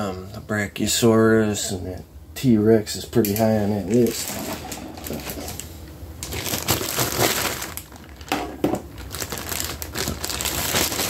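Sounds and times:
crinkling and rustling handling: 3.2 - 11.0.

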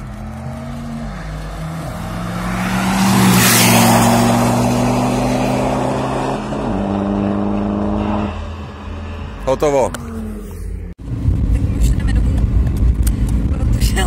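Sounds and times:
car driving past: 0.0 - 10.9
car engines droning: 0.0 - 14.0.

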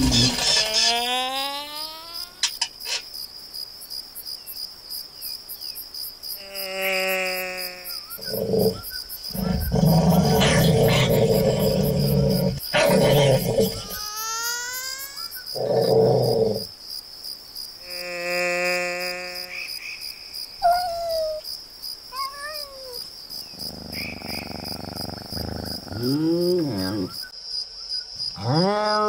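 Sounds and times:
crickets chirping: 0.0 - 29.0
dog growling: 8.2 - 14.0, 23.5 - 27.2
cat meowing and yowling: 20.6 - 21.4, 22.1 - 23.0.

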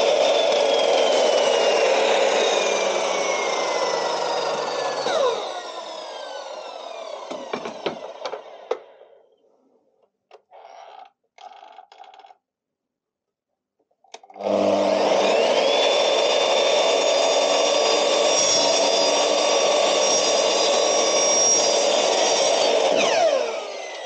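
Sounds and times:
saw starting up: 0.0 - 9.2, 14.4 - 24.0
mitre saw blade whine: 0.0 - 9.3, 14.4 - 24.0.

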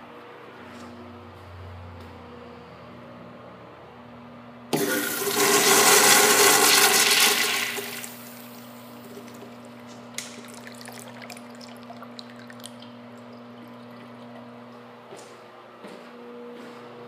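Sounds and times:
urinal flushing: 4.7 - 14.7
water dripping into bowl: 9.3 - 14.6.

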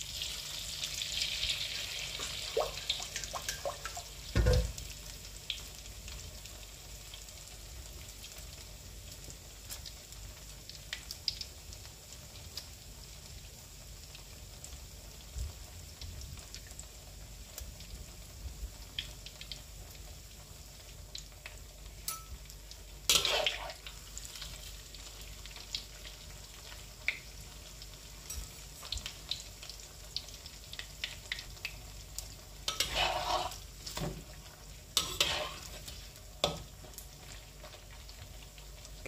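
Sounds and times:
food sizzling in hot oil: 0.0 - 39.0
metal spatula scraping a wok: 23.1 - 23.7, 32.7 - 33.6, 35.0 - 35.9.

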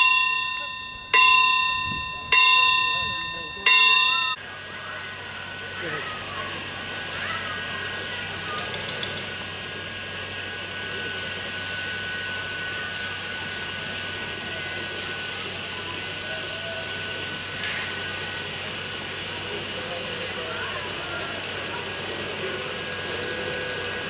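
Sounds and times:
miniature steam locomotive running: 0.0 - 24.0
steam exhaust bursts: 4.4 - 24.0
steam hissing: 4.4 - 24.0.

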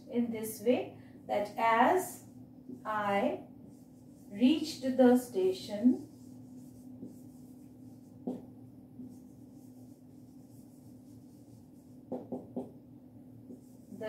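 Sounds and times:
steady low hum: 0.0 - 14.0
marker pen writing on whiteboard: 3.7 - 12.8, 13.4 - 14.0
marker tapping: 6.2 - 7.4, 8.2 - 8.5, 11.3 - 12.8, 13.4 - 13.9.

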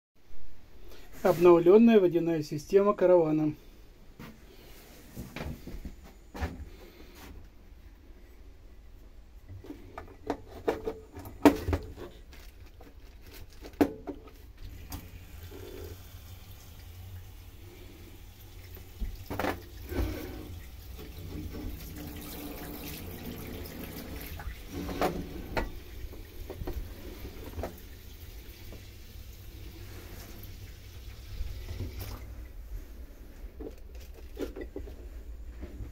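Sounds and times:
water running into steel sink: 14.6 - 32.5.

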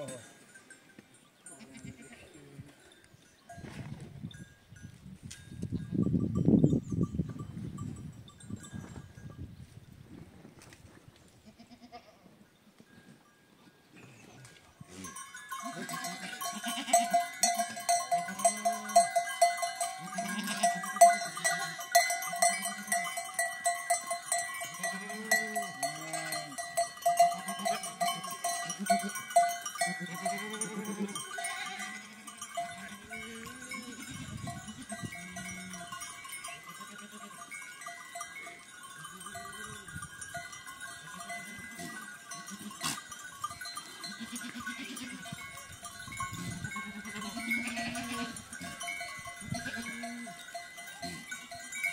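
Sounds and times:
livestock bells ringing: 0.0 - 9.5, 12.9 - 51.9
sheep and goats bleating: 1.4 - 2.9, 11.4 - 12.4, 14.0 - 51.9.

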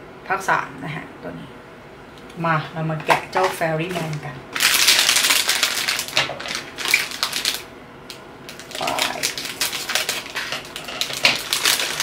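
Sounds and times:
plastic wrapping crinkling: 3.4 - 12.0.

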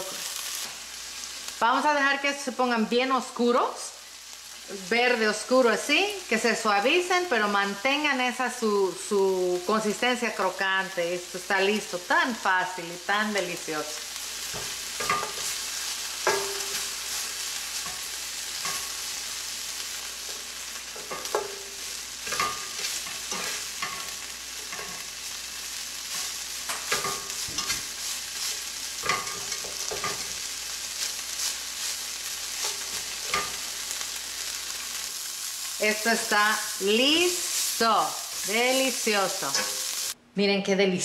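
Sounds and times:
vegetables sizzling in oil: 0.0 - 40.2
spatula scraping and knocking pan: 14.4 - 19.2, 20.2 - 25.1, 26.1 - 33.7, 39.3 - 40.0.

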